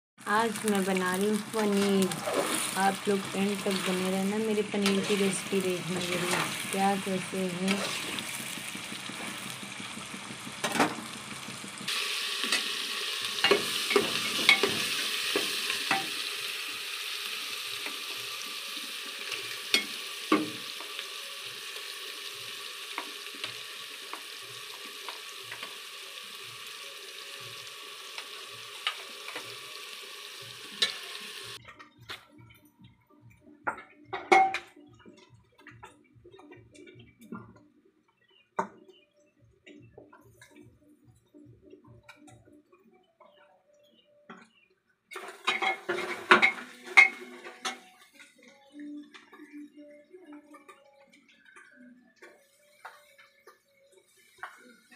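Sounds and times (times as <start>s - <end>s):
hot oil sizzling: 0.2s - 31.6s, 45.1s - 48.2s
metal spoon tapping and scraping pan: 13.4s - 16.2s, 19.7s - 21.0s, 30.8s - 31.0s.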